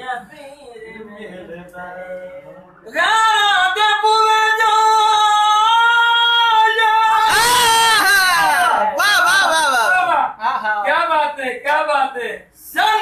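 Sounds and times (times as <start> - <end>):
man singing in a high strained voice: 0.0 - 9.6.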